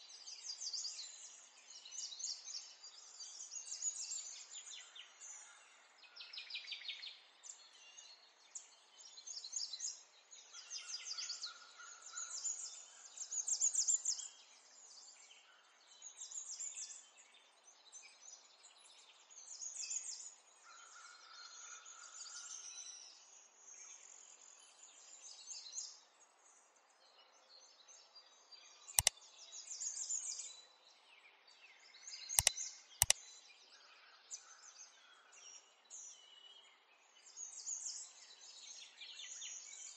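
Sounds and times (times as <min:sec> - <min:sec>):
sharp clicks: 0:32.4 - 0:33.2.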